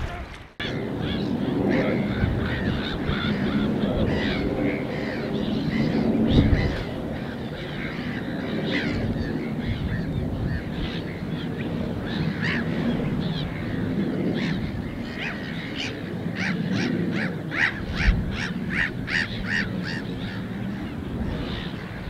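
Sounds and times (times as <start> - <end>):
birds honking calls: 0.0 - 22.0
wind rushing: 17.0 - 22.0.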